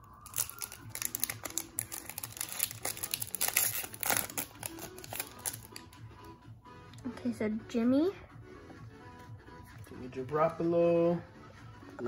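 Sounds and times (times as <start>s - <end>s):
foil wrapper tearing and crinkling: 0.1s - 5.9s.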